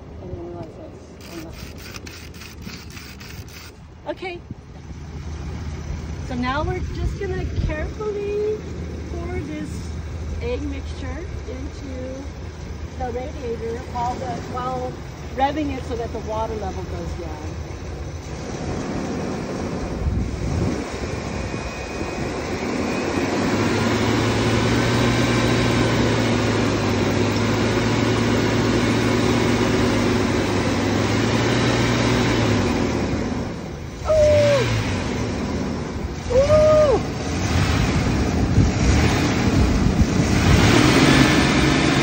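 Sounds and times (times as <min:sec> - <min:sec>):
car engine revving: 0:15.8 - 0:42.0.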